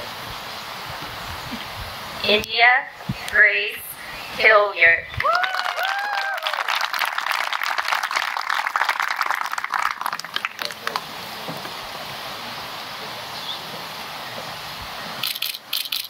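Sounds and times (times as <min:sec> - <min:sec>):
outdoor background hiss: 0:00.0 - 0:16.0
whooping cheers: 0:05.2 - 0:10.6
small crowd clapping: 0:05.2 - 0:11.2.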